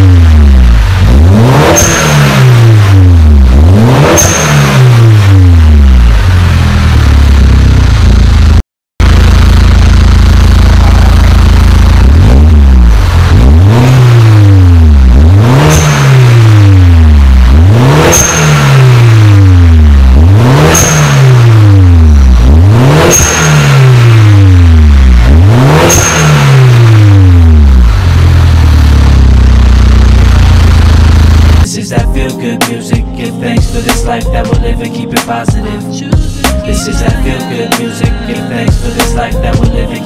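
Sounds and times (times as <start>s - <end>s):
car engine idling: 0.0s - 31.7s
car engine revving: 0.0s - 31.7s.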